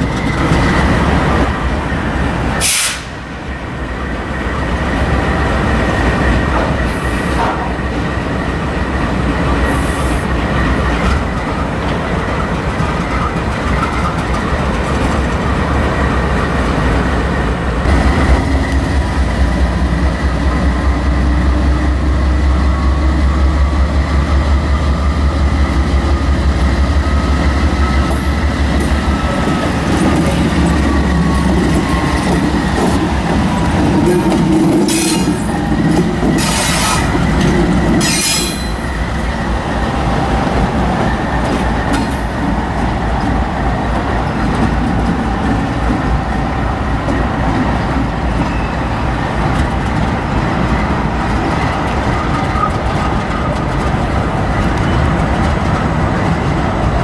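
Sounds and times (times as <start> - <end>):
diesel locomotive engine rumbling: 0.0 - 57.0
rail cars clattering: 0.0 - 57.0
high wheel squeal: 38.0 - 38.9, 48.2 - 49.0.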